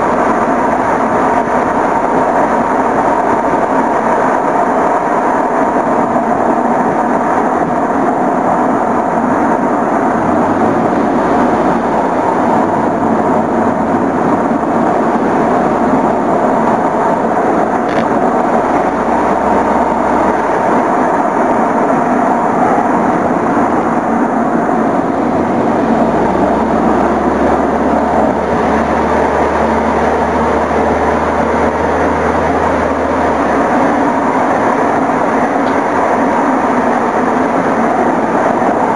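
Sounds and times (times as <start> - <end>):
low rumble: 0.0 - 38.9
road noise: 0.0 - 38.9
rushing wind: 0.0 - 38.9.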